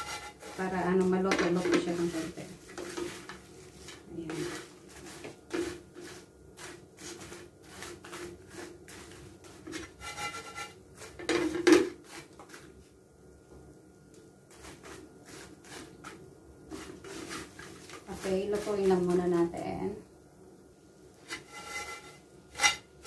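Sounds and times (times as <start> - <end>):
spatula scraping dried fish: 0.0 - 12.8, 14.5 - 19.6, 21.2 - 23.0.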